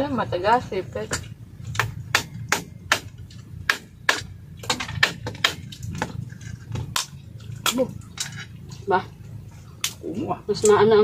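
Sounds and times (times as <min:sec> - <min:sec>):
crab shell cracking: 0:05.0 - 0:08.2.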